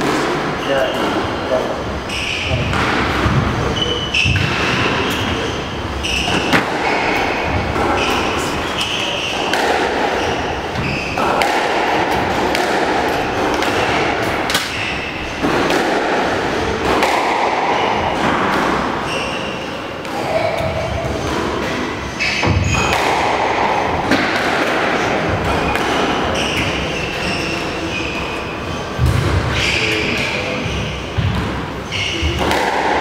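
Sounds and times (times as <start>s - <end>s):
shoes squeaking on wooden floor: 0.5s - 11.4s, 19.0s - 22.9s, 25.5s - 32.4s
squash ball knocks: 6.3s - 18.9s.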